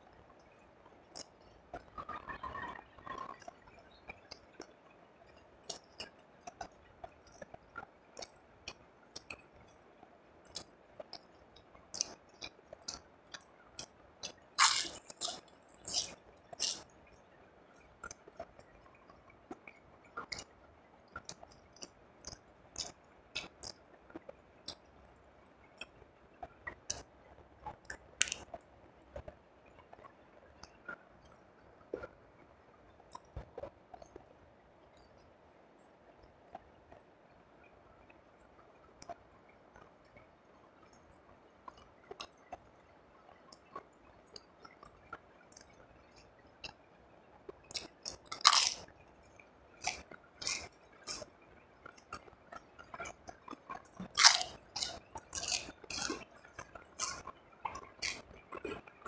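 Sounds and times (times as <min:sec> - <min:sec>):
wet mouth clicks and smacks: 0:01.1 - 0:01.4, 0:10.4 - 0:16.9, 0:21.1 - 0:24.9, 0:26.6 - 0:27.1, 0:27.8 - 0:28.6, 0:47.6 - 0:48.9, 0:49.8 - 0:58.9
close chewing: 0:05.6 - 0:07.5, 0:10.4 - 0:16.9, 0:21.1 - 0:24.8, 0:26.6 - 0:28.6, 0:47.6 - 0:59.0.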